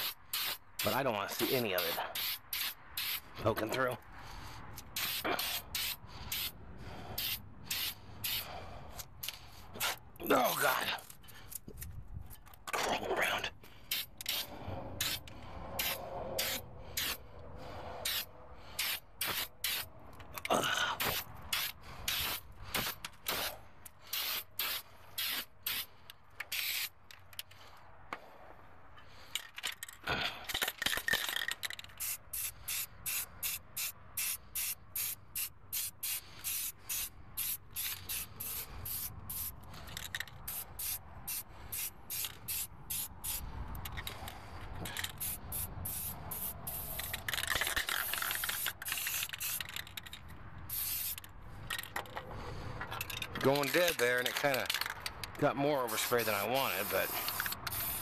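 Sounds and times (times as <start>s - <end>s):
spray paint can hissing: 0.0s - 3.3s, 4.8s - 8.6s, 13.9s - 17.2s, 18.0s - 19.9s, 21.0s - 25.9s, 26.5s - 27.0s, 31.9s - 43.4s, 44.9s - 50.1s, 50.7s - 51.3s, 55.8s - 58.0s.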